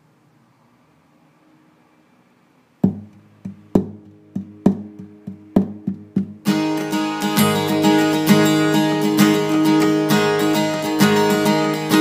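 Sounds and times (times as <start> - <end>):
guitar plucking notes: 2.8 - 12.0.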